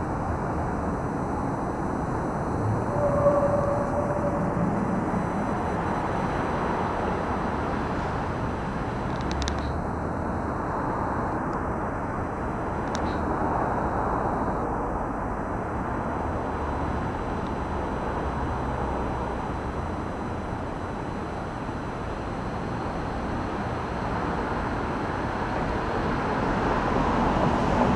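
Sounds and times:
low urban rumble: 0.0s - 27.9s.

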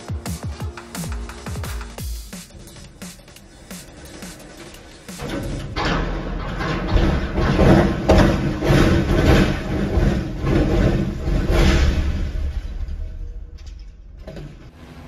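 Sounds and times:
sharp metal knocks: 5.1s - 14.5s.

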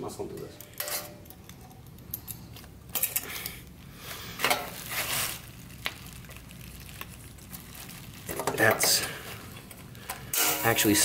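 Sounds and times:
pliers scraping metal spring: 0.6s - 2.4s, 10.1s - 10.9s.

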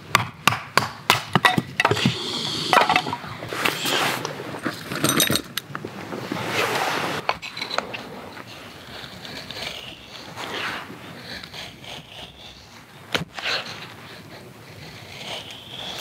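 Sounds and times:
knife scraping wooden stick: 1.4s - 4.8s, 7.2s - 16.0s.

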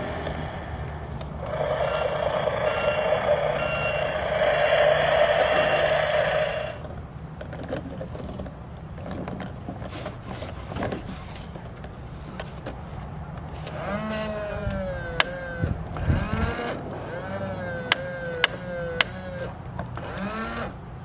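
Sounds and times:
toy motor whirring: 0.0s - 6.8s, 13.7s - 20.8s
toy truck sound effects: 0.0s - 6.8s, 13.7s - 20.8s.

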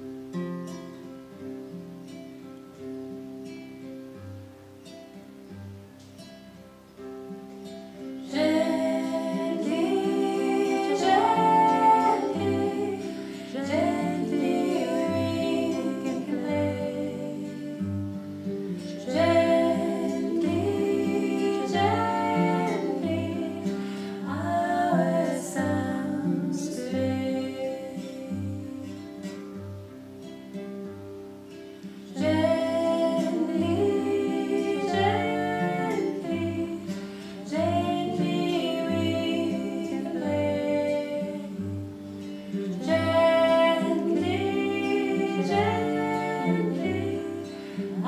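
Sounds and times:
nylon-string guitar: 0.0s - 48.0s
woman singing: 8.2s - 29.6s, 32.0s - 48.0s.

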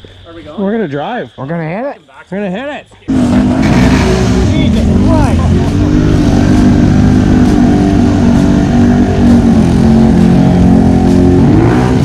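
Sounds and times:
atv engine running: 3.1s - 12.0s.

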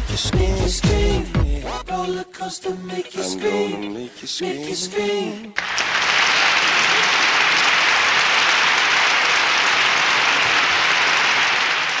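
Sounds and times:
audience applause: 5.6s - 12.0s.

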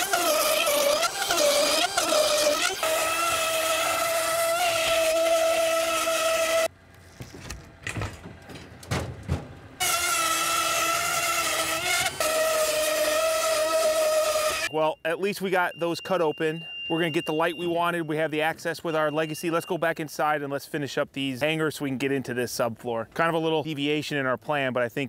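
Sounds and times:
power tool motor whining: 0.0s - 6.7s, 9.8s - 14.7s.

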